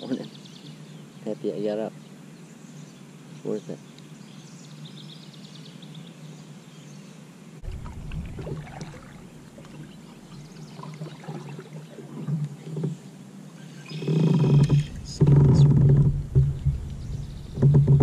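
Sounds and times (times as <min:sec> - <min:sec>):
low rumble: 0:07.6 - 0:10.6, 0:14.6 - 0:18.0
paddle strokes splashing water: 0:07.6 - 0:13.1.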